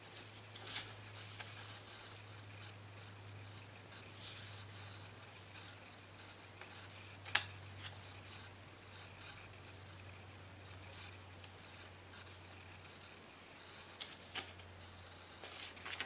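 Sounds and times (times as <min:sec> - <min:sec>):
steady low hum: 0:00.0 - 0:16.0
pencil scratching on paper: 0:01.1 - 0:07.2.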